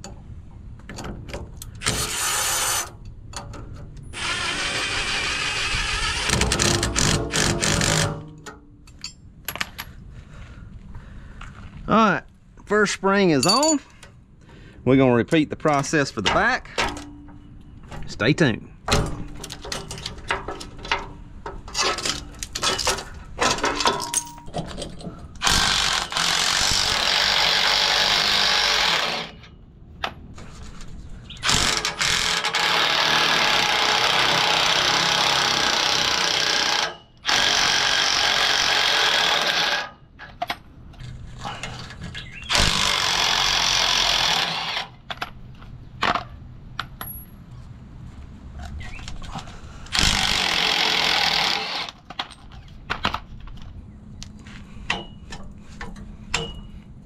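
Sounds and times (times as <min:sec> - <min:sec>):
metal parts clinking: 0:06.6 - 0:10.0, 0:13.2 - 0:14.2, 0:18.9 - 0:26.0.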